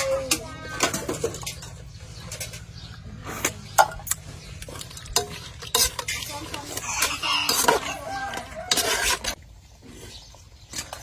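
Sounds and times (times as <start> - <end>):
metal spoon scraping a pot: 4.6 - 11.0.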